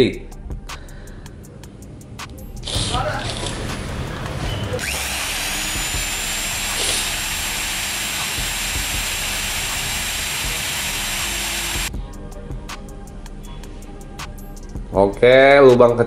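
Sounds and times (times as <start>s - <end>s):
drill motor running: 4.8s - 11.9s.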